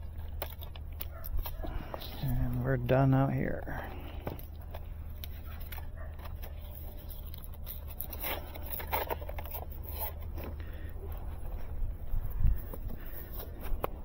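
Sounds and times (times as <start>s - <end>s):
steady low rumble: 10.1s - 14.0s.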